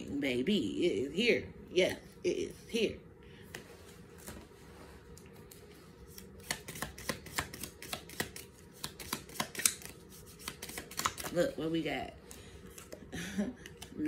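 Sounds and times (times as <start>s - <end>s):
cards clicking in hands: 6.4s - 11.3s.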